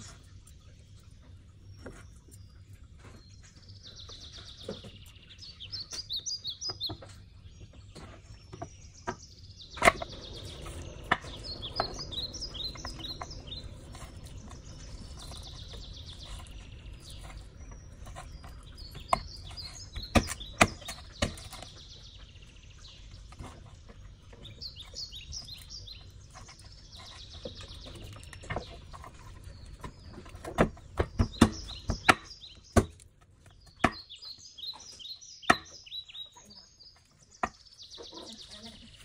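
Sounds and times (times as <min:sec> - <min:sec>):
small birds chirping: 0:00.0 - 0:39.0
knife chopping on wooden board: 0:18.1 - 0:21.6, 0:30.3 - 0:33.0.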